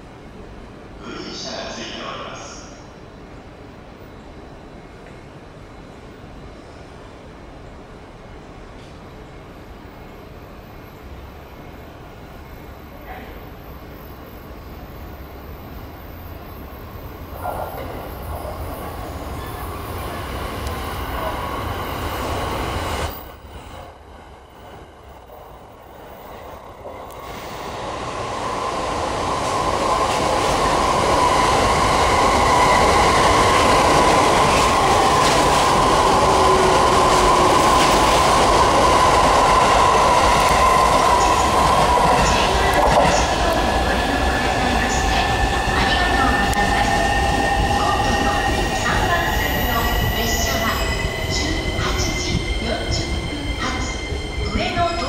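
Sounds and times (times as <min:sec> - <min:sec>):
train wheels on rail: 0:13.4 - 0:55.0.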